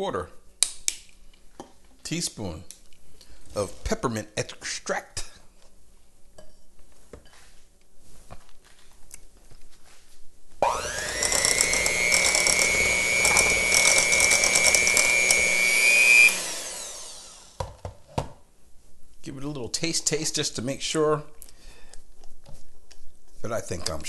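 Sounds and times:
electric hand mixer whining: 0:10.6 - 0:17.6.

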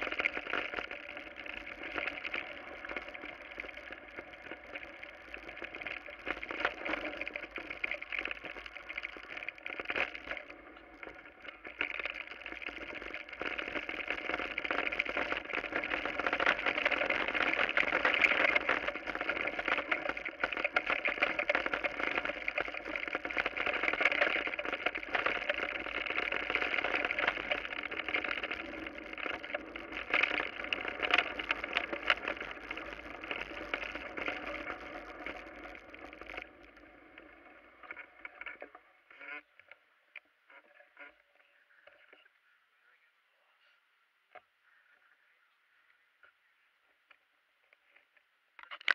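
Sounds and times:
bike rattling over ground: 0:00.0 - 0:36.8.

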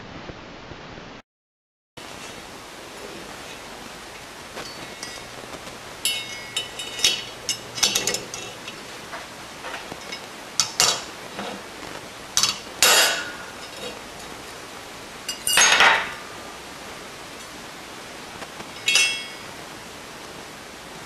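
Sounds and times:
metal scraping: 0:02.0 - 0:16.3, 0:18.3 - 0:19.6
metal clinks: 0:04.6 - 0:05.4, 0:06.0 - 0:11.6, 0:15.3 - 0:16.2, 0:18.8 - 0:19.6.

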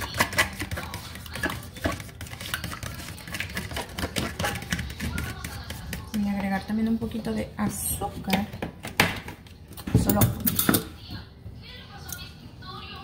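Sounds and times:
fork beating eggs in container: 0:00.0 - 0:07.3.

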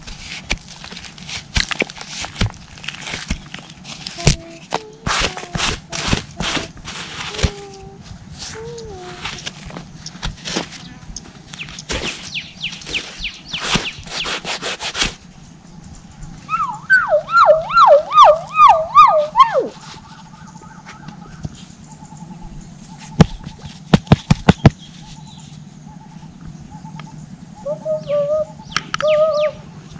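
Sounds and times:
fingers scraping dry soil: 0:00.0 - 0:15.3
loud wavering wail: 0:16.5 - 0:19.8.

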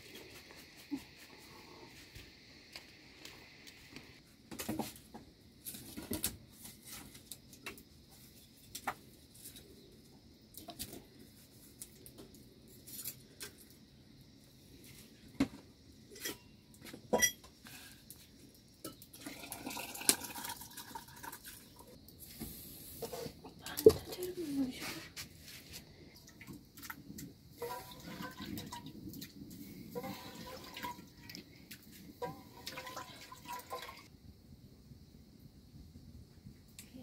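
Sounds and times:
metal pots knocking and clinking: 0:16.1 - 0:17.5, 0:27.6 - 0:28.8, 0:29.9 - 0:31.4, 0:32.2 - 0:34.1.

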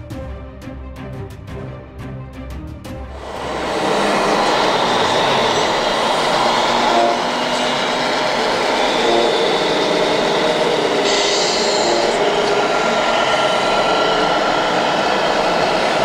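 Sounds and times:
model truck motors humming: 0:03.2 - 0:16.0
bright hiss: 0:10.0 - 0:15.2.

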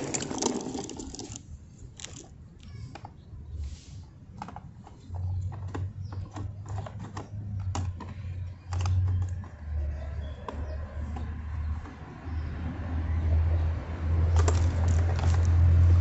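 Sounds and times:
plastic toy clicks and clacks: 0:04.4 - 0:12.0.

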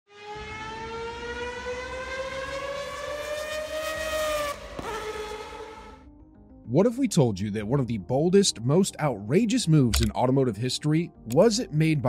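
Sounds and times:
race car engine revving: 0:00.1 - 0:06.0.

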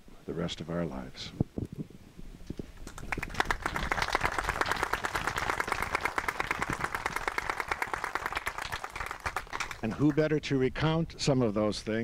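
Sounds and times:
people clapping: 0:02.8 - 0:10.3.

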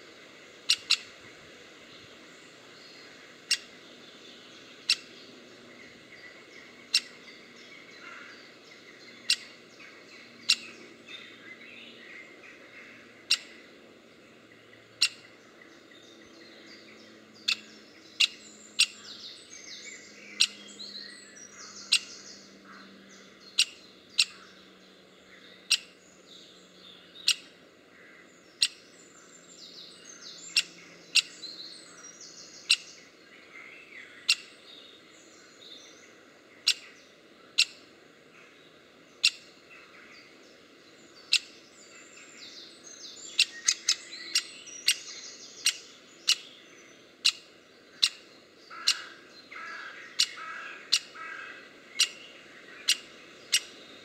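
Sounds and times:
faint birdsong: 0:00.0 - 0:54.0
woodpecker sharp calls: 0:00.6 - 0:01.2, 0:03.4 - 0:03.8, 0:04.7 - 0:05.2, 0:06.2 - 0:10.9, 0:12.5 - 0:13.6, 0:14.9 - 0:15.5, 0:17.4 - 0:24.6, 0:25.6 - 0:26.0, 0:27.2 - 0:27.6, 0:28.3 - 0:29.3, 0:30.3 - 0:33.1, 0:34.1 - 0:34.5, 0:36.6 - 0:37.9, 0:39.2 - 0:39.9, 0:41.2 - 0:42.3, 0:43.2 - 0:46.6, 0:47.2 - 0:53.9.

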